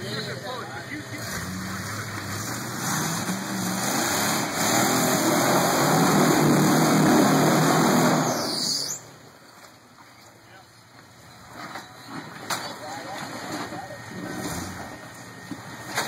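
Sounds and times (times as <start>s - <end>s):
off-road vehicle engine revving: 0.0s - 9.0s, 13.2s - 16.0s.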